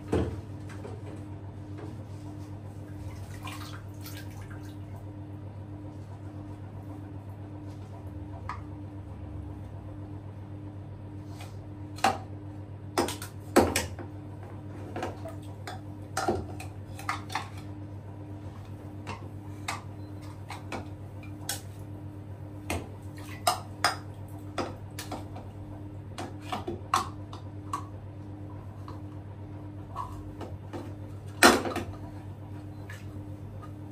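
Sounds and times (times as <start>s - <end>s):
steady low hum: 0.0s - 33.9s.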